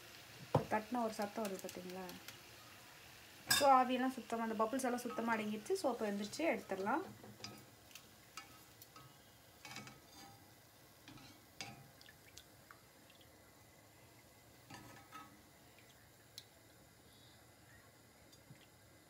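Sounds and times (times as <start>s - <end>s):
metal skimmer clinking on pan: 3.5s - 3.8s.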